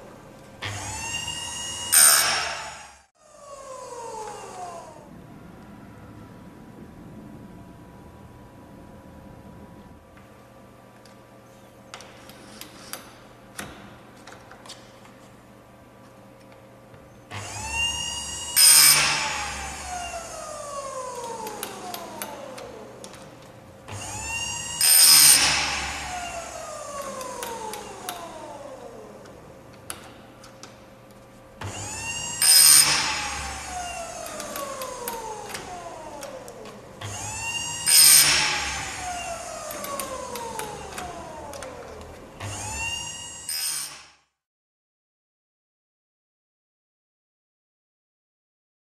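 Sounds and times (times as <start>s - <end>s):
sharpener motor whine: 0.6s - 5.1s, 17.3s - 23.1s, 23.9s - 29.4s, 31.6s - 44.2s.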